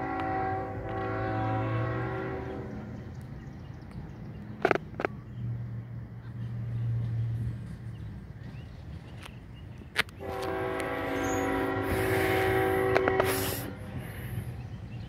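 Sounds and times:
locomotive air horn chord: 0.0 - 3.0, 10.2 - 14.3
diesel locomotive engine rumble: 0.0 - 15.0.

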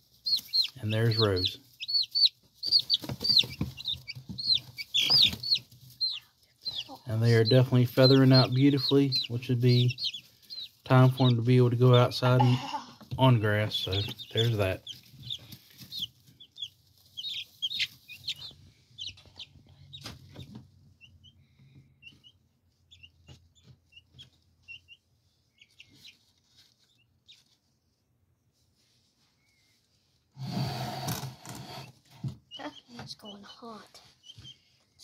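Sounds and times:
chicks peeping: 0.0 - 27.8, 30.4 - 35.0
sharp knocks and rustles: 2.4 - 6.0.

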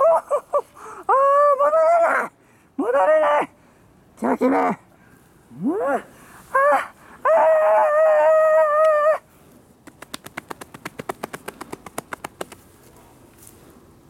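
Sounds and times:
person wailing: 5.6 - 9.2
hands slapping on chest: 9.8 - 12.7.

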